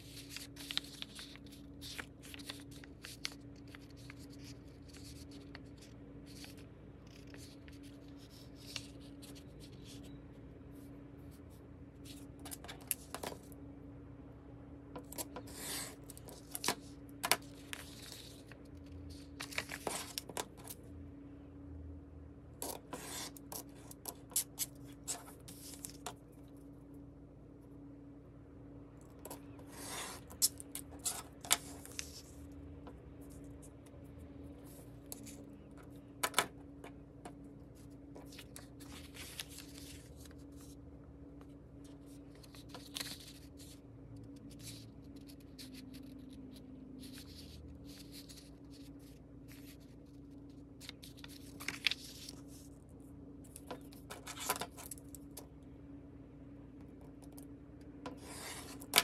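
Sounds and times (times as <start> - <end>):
paper rustling and scraping: 0.0 - 10.9, 12.0 - 13.6, 15.0 - 20.8, 22.6 - 26.3, 29.2 - 32.5, 34.4 - 40.8, 41.4 - 55.2, 58.1 - 59.0
steady low hum: 0.0 - 59.0.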